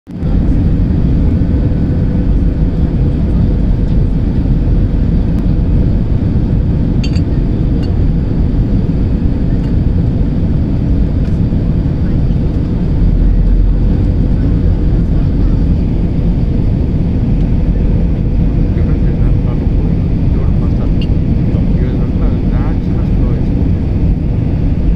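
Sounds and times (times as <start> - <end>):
jet engine and airflow rumble: 0.1 - 24.9.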